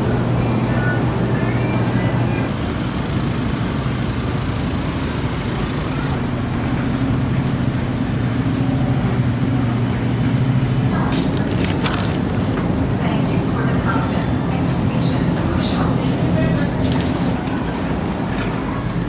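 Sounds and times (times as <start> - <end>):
noisy store background: 0.0 - 19.0
steady low hum: 0.0 - 19.0
sharp clicks and clatters: 2.4 - 6.2, 11.0 - 12.7.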